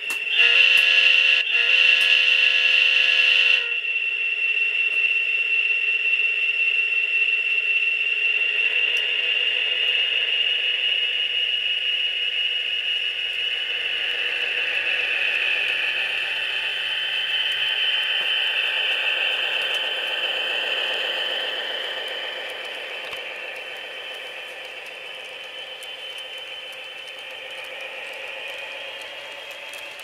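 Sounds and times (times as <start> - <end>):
model train diesel engine sound: 0.0 - 30.0
horn sound: 0.3 - 3.8.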